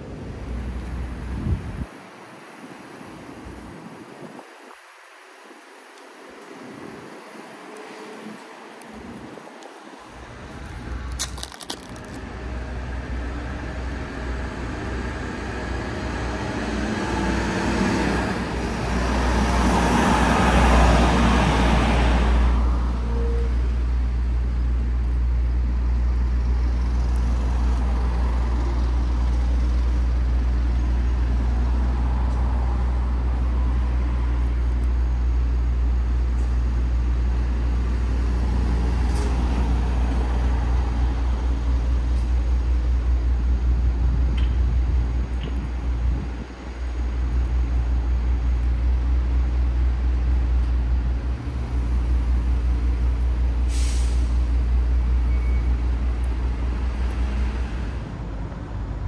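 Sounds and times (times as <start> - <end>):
steady low traffic rumble: 0.0 - 59.0
vehicle passing close by: 12.2 - 23.0.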